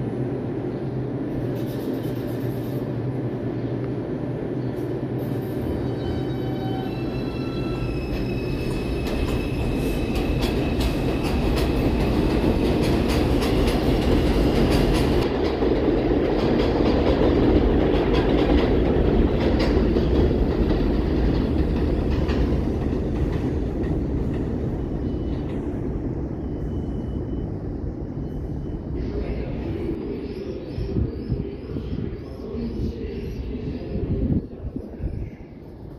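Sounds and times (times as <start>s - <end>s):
train rumbling on steel structure: 0.0s - 35.9s
high squeal: 5.3s - 12.2s.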